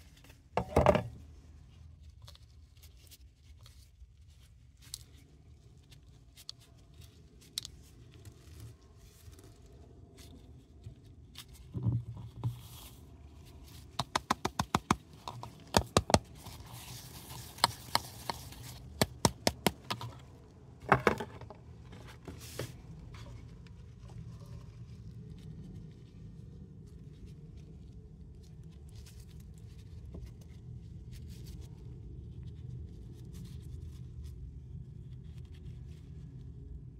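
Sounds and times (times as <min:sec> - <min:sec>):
quick sharp taps: 0:14.0 - 0:16.3.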